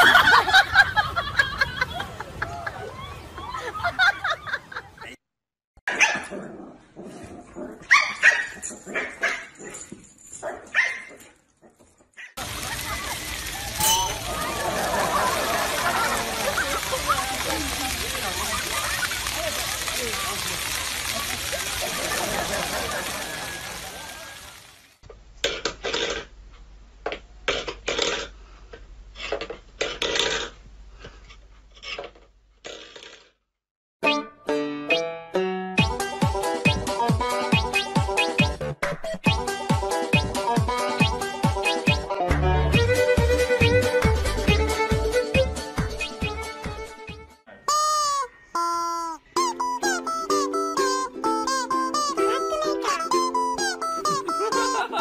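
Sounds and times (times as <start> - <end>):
dog barking: 5.9 - 6.3, 7.9 - 9.8, 10.4 - 11.2
metal bowl clattering and scraping: 13.8 - 14.3
music: 34.0 - 47.4, 49.4 - 55.0.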